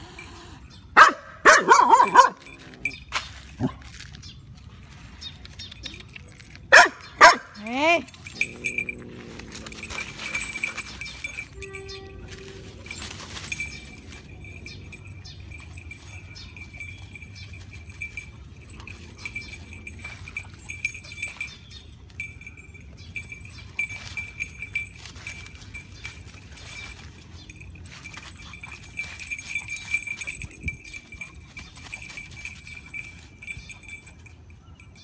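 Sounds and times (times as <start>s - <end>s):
small clinks: 1.9s - 35.0s
dogs rustling through dry leaves: 8.2s - 34.2s.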